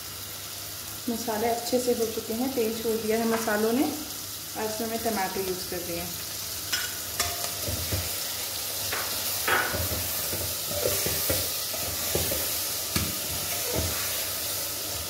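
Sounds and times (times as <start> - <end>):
vegetables sizzling in hot oil: 0.0 - 15.0
metal ladle scraping a pot: 8.9 - 14.6.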